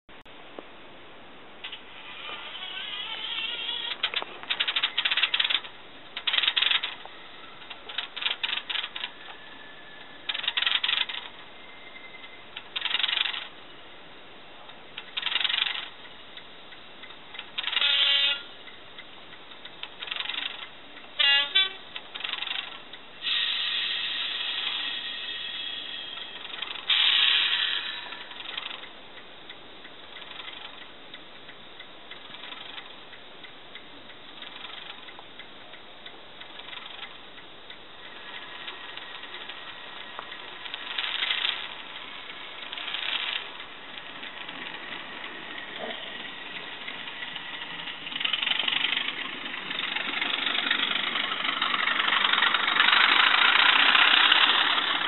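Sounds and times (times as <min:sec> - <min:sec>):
quick clicks: 0:02.7 - 0:09.4, 0:10.0 - 0:13.5, 0:14.7 - 0:16.0, 0:17.0 - 0:18.4, 0:19.5 - 0:20.7, 0:21.9 - 0:22.8, 0:26.1 - 0:28.9, 0:30.1 - 0:30.9, 0:32.1 - 0:32.9, 0:34.4 - 0:35.2, 0:36.4 - 0:37.2, 0:38.0 - 0:55.0
diesel locomotive clanks: 0:14.7 - 0:29.0, 0:36.0 - 0:55.0.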